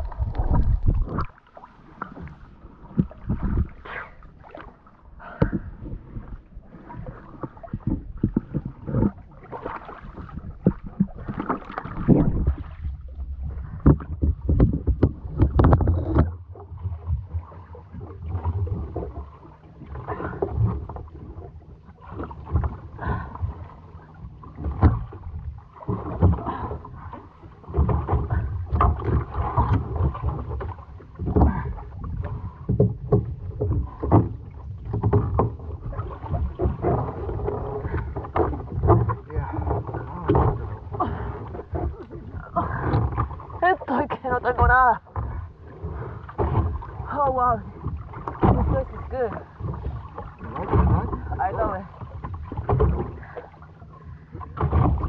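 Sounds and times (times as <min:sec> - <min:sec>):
water slapping boat hull: 0:00.0 - 0:55.0
swimmer splashing: 0:38.9 - 0:55.0.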